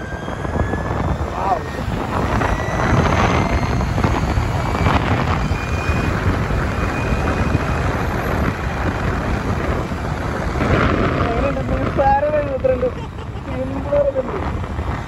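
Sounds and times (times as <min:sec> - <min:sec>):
faint high whine: 0:00.0 - 0:09.0
wind and road noise: 0:00.0 - 0:15.0.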